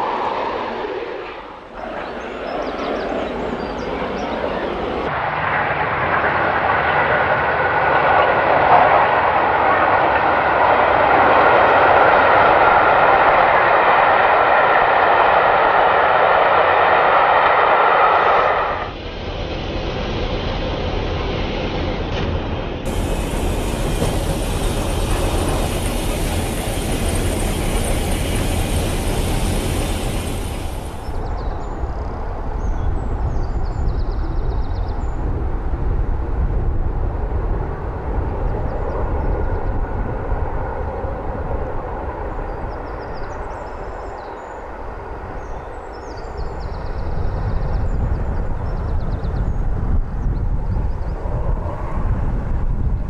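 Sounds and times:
steam train running: 7.8 - 31.3.

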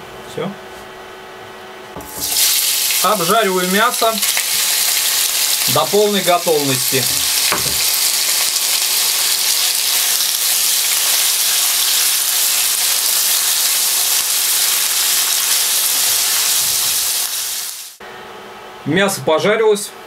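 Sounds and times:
meat sizzling in oil: 2.0 - 18.0.

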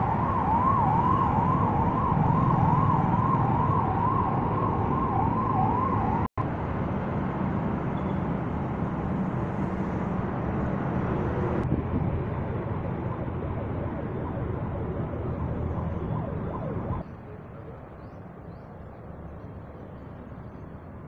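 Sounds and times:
vehicle siren yelping: 0.0 - 6.3, 12.7 - 17.0.

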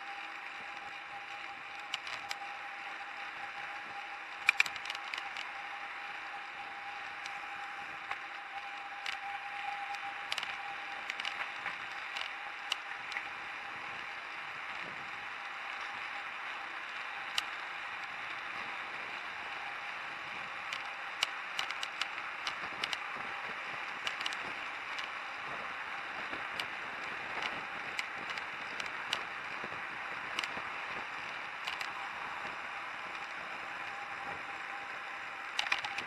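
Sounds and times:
bicycle riding rushing noise: 0.0 - 36.0
sharp clicks and rattles: 0.7 - 2.5, 4.3 - 5.6, 7.1 - 13.3, 17.2 - 18.1, 20.6 - 23.3, 23.9 - 25.2, 26.2 - 33.4, 35.5 - 36.0.

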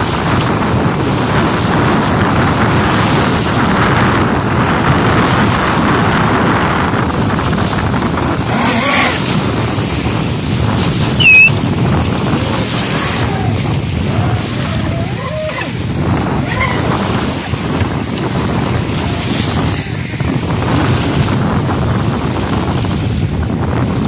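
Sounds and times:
small waves at shore: 0.0 - 24.0
wind buffeting microphone: 0.0 - 24.0
model speedboat motor running: 7.8 - 20.0
loud high squeal: 11.2 - 11.6.

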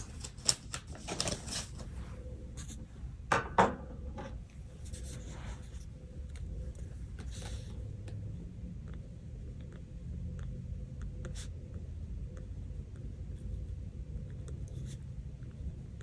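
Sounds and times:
paper rustling: 0.0 - 2.0.

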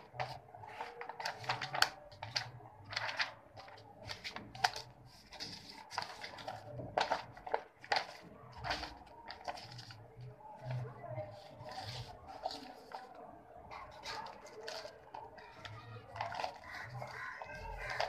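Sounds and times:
book pages riffling: 0.0 - 18.0
book handled: 0.1 - 10.0, 10.6 - 13.2.

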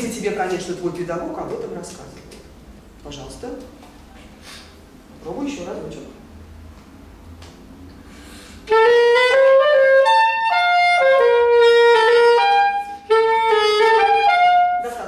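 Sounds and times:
solo saxophone dance tune: 8.6 - 15.0.

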